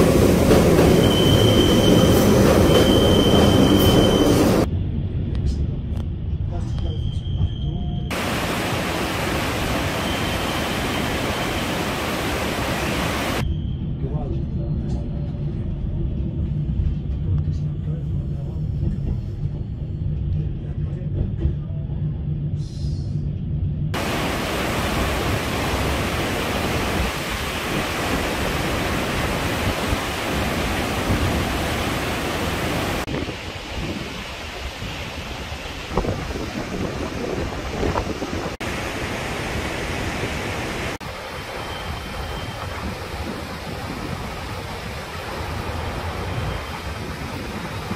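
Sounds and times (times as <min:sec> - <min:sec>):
river rapids and waterfall rushing: 0:08.1 - 0:13.4, 0:24.0 - 0:33.6, 0:38.6 - 0:47.9.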